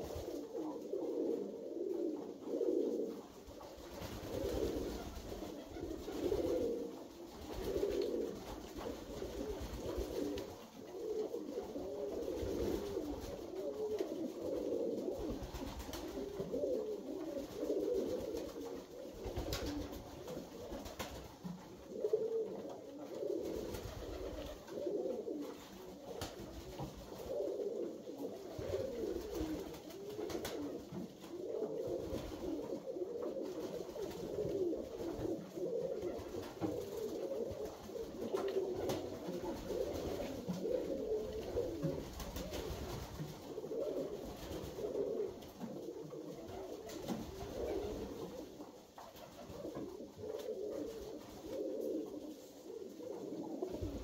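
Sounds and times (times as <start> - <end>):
pigeons cooing: 0.0 - 54.0.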